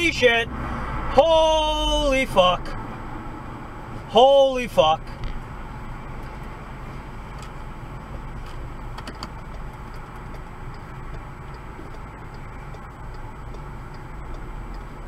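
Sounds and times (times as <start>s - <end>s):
car road and engine noise: 0.0s - 15.0s
faint regular ticking: 8.8s - 15.0s.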